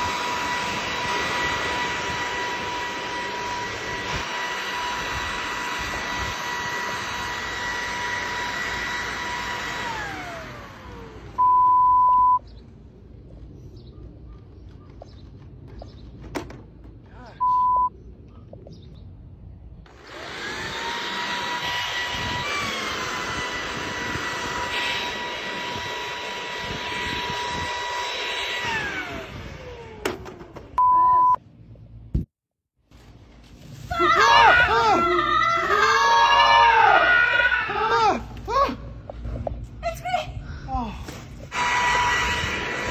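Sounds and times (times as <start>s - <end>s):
electric leaf blower whine: 0.0s - 12.3s, 19.9s - 30.8s, 41.1s - 42.9s
loud beep tones: 11.4s - 12.4s, 17.4s - 17.9s, 30.8s - 31.4s.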